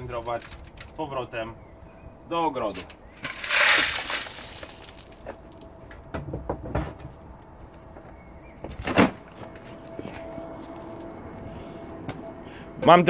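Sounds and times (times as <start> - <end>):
gravel rattling in a rubber pan: 3.2 - 5.7.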